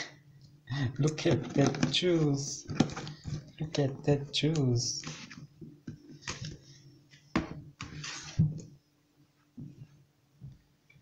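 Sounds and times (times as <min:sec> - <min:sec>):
plastic bottles clicking and rustling: 0:01.1 - 0:04.1.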